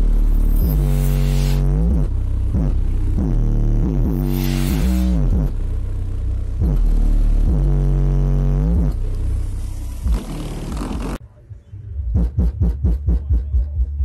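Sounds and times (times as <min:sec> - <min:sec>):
loud bass-heavy music: 0:00.0 - 0:14.0.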